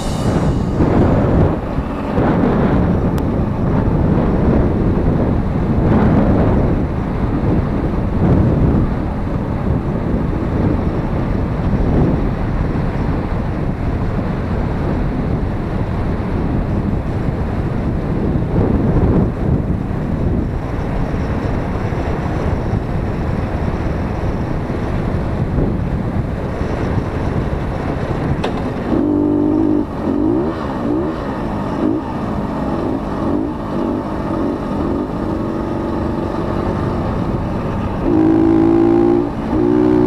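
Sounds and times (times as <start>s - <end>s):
wind buffeting microphone: 0.0s - 40.0s
two-stroke moped engine: 28.3s - 40.0s.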